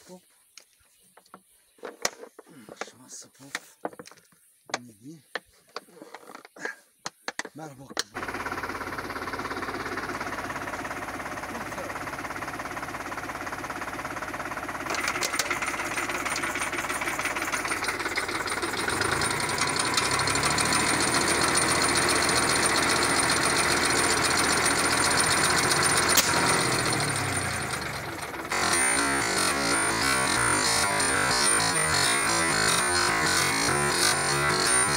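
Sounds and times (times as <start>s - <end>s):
tractor engine running: 8.0s - 34.9s
air compressor pumping: 14.2s - 34.9s.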